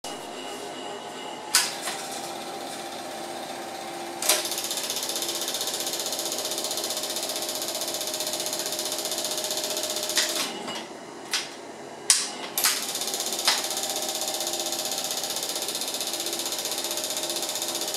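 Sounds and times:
film projector clattering: 0:04.2 - 0:10.5, 0:12.6 - 0:17.9
sharp switch clicks: 0:12.1 - 0:12.8.

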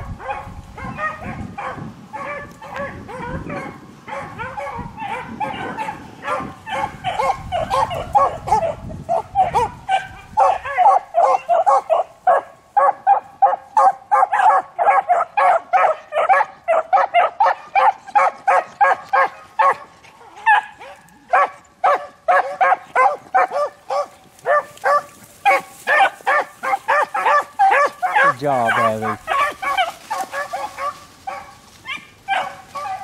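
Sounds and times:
beagles baying: 0:00.0 - 0:33.0.

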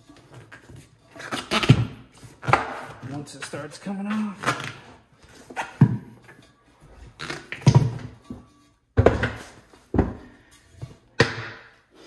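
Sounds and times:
rubbery thumps and scrapes of tire: 0:00.2 - 0:03.3, 0:04.1 - 0:06.2, 0:07.0 - 0:08.4.

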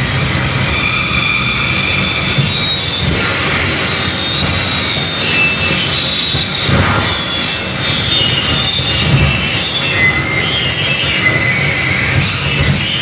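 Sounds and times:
squealing high tones: 0:00.6 - 0:12.2
pulsing low rumble: 0:06.5 - 0:09.2.

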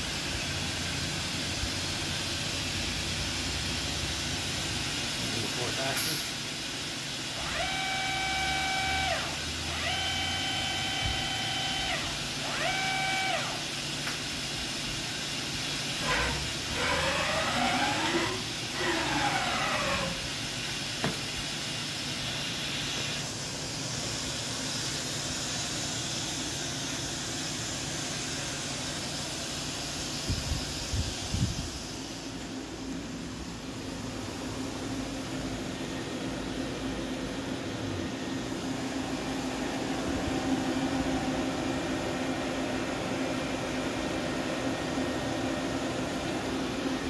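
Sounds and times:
steady machine hiss: 0:00.0 - 0:12.5, 0:13.2 - 0:43.7
electric servo whine: 0:07.4 - 0:13.6, 0:16.0 - 0:20.3.

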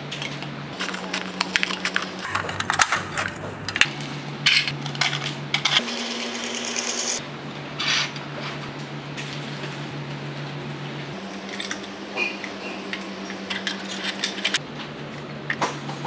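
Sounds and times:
metal crinkling and scraping: 0:00.2 - 0:05.8, 0:13.4 - 0:14.6.

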